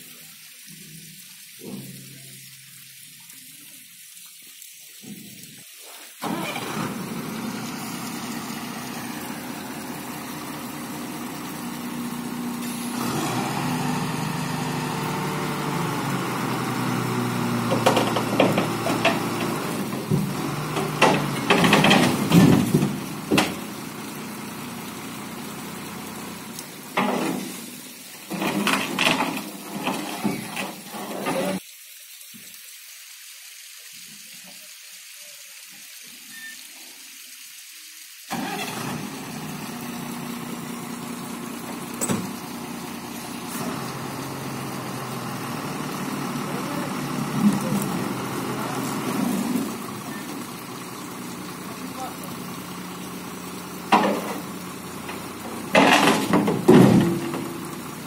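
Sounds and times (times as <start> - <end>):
truck engine running: 6.2 - 27.6, 38.3 - 58.0
clattering and knocking: 17.7 - 23.6, 55.1 - 57.5.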